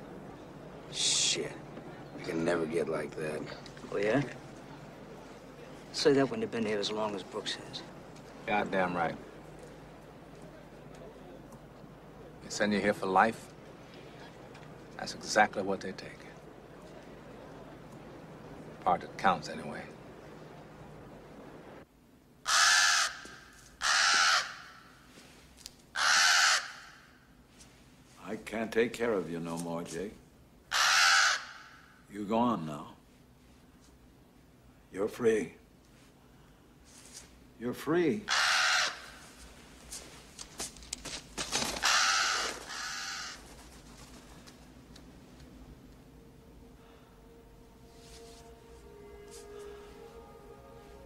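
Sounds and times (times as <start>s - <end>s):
crow cawing: 22.4s - 24.9s, 25.9s - 27.2s, 30.7s - 32.0s, 38.3s - 39.3s, 41.6s - 43.7s.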